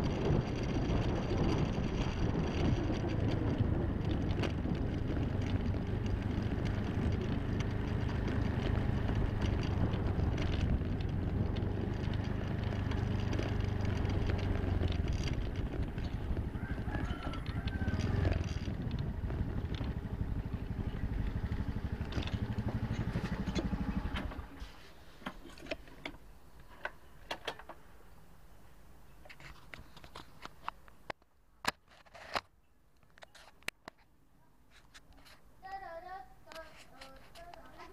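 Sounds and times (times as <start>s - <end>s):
motor scooter engine running: 0.0s - 24.6s.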